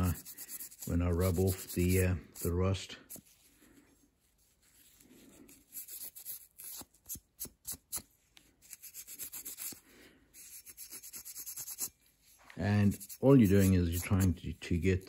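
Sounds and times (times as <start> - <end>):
scrubbing pad on steel: 0.0 - 3.3, 12.6 - 15.0.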